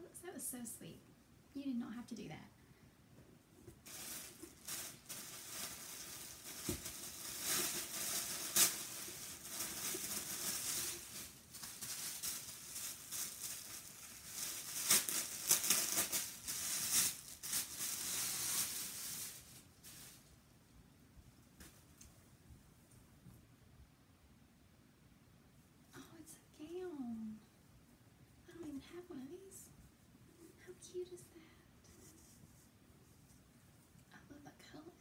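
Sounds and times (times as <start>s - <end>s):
fabric rustling: 3.6s - 20.3s
paper wrapping crinkling: 3.7s - 20.4s.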